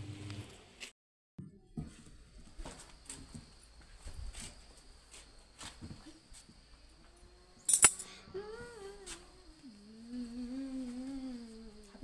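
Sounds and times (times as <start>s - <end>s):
person humming a wavering note: 7.0s - 12.0s.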